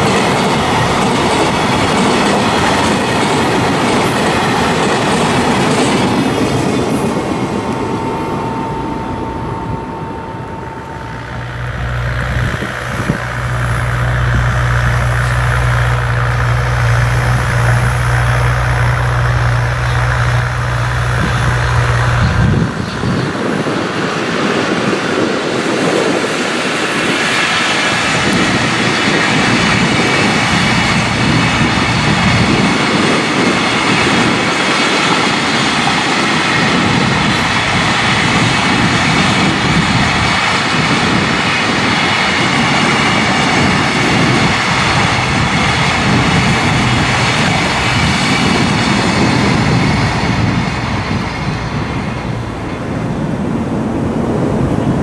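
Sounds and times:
freight train wheels rumbling: 0.0s - 55.0s
faint steady ringing: 5.3s - 22.0s
low steady hum: 7.2s - 22.6s.

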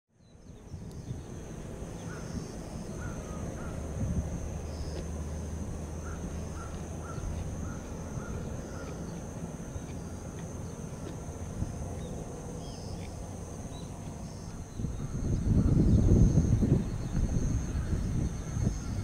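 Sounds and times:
faint high drone: 0.2s - 19.0s
crows cawing: 2.9s - 3.8s, 6.0s - 9.2s.

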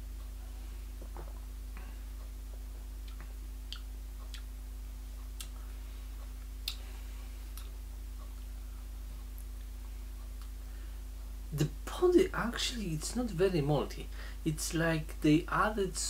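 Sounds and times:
steady low hum: 0.0s - 16.0s
faint clicks and ticks: 1.0s - 6.8s.

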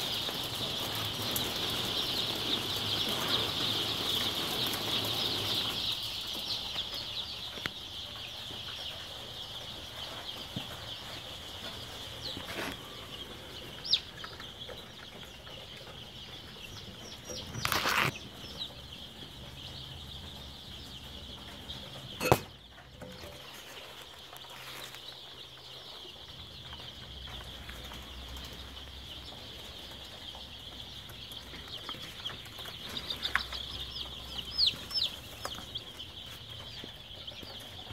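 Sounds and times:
chicks peeping: 0.0s - 37.9s
sharp knocks: 22.2s - 22.6s.

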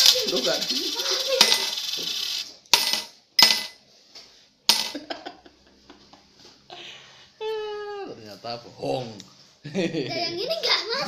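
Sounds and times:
coins clinking against glass: 0.0s - 3.8s.

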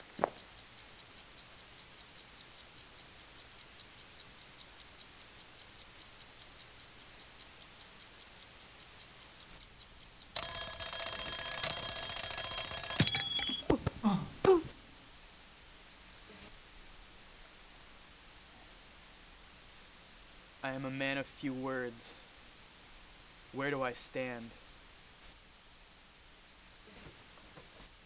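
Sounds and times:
clock ticking: 0.0s - 13.7s
alarm clock ringing: 10.4s - 13.6s.

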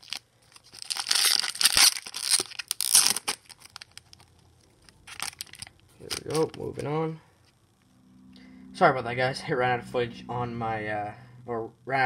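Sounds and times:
foil wrapper tearing and crinkling: 0.0s - 6.8s.

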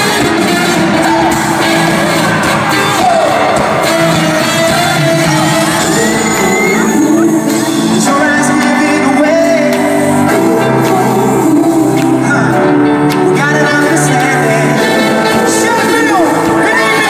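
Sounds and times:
live pop band through sound system: 0.0s - 17.0s
man singing into a microphone: 5.6s - 17.0s.

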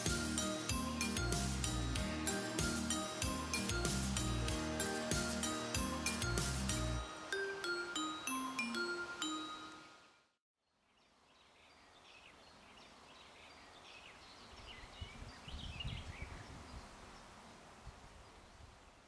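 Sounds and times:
glockenspiel-like music: 0.0s - 10.2s
small birds chirping: 10.7s - 19.0s.

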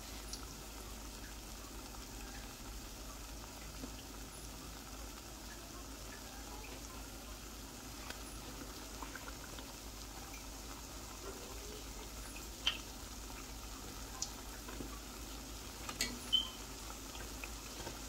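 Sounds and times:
fritters sizzling in hot oil: 0.0s - 18.0s
oil crackles: 7.8s - 18.0s.

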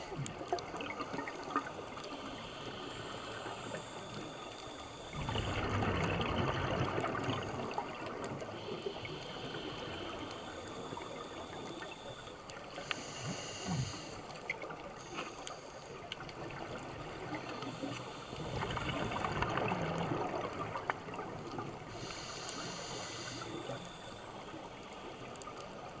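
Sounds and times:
hissing regulator inhalation: 8.6s - 16.0s, 21.9s - 24.8s.

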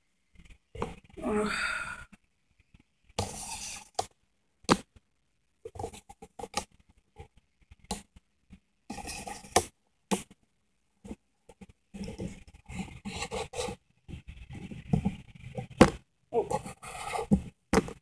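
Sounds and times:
rubbing and scraping: 8.9s - 9.7s, 11.1s - 18.0s.

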